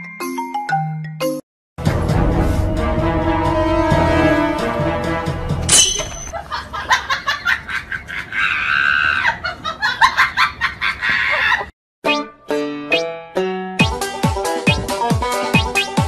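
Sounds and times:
background music: 0:00.0 - 0:05.8, 0:12.0 - 0:16.0
music with quick regular beat: 0:13.8 - 0:16.0.

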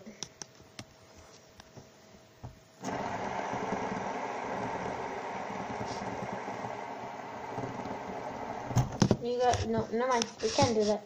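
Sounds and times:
fidget spinner whirring: 0:02.8 - 0:11.0.

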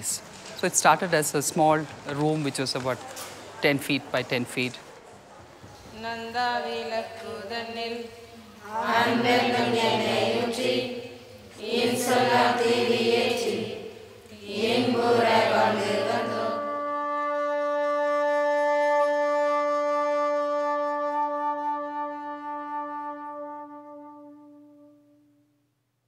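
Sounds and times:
women chanting in unison: 0:05.9 - 0:16.6.

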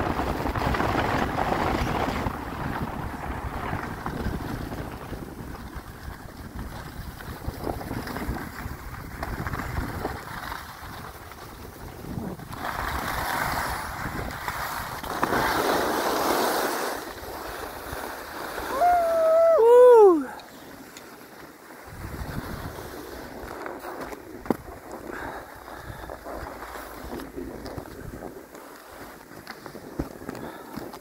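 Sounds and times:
wind buffeting microphone: 0:00.0 - 0:15.3, 0:21.8 - 0:31.0
skis scraping over snow: 0:00.0 - 0:31.0.

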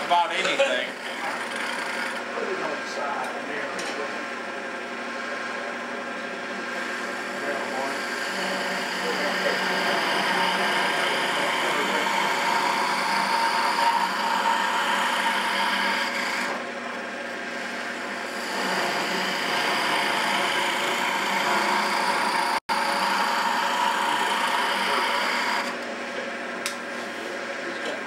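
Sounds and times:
turning tool scraping wood: 0:00.0 - 0:02.4, 0:06.2 - 0:16.6, 0:17.4 - 0:25.8
wood lathe hum: 0:00.0 - 0:28.0.

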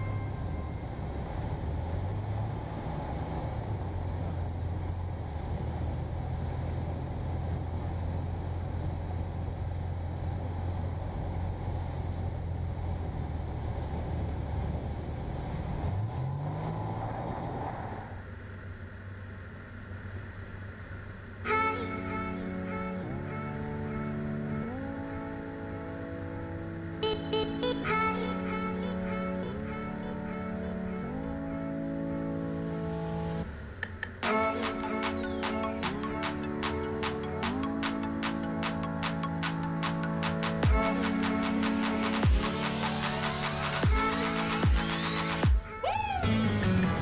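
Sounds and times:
light aircraft engine and propeller: 0:00.0 - 0:15.9.

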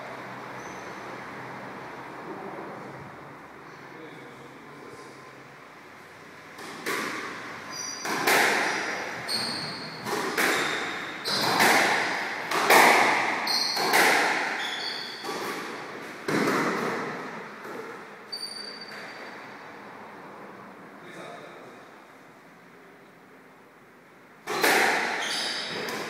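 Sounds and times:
shoes squeaking on court floor: 0:00.6 - 0:01.1, 0:07.6 - 0:12.3, 0:13.1 - 0:19.5, 0:24.5 - 0:26.0
squash ball hitting racquets and walls: 0:06.5 - 0:19.5, 0:24.4 - 0:26.0.

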